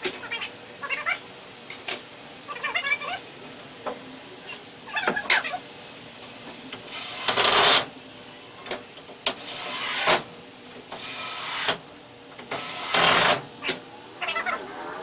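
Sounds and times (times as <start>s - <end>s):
power driver driving screws: 12.5s - 13.4s.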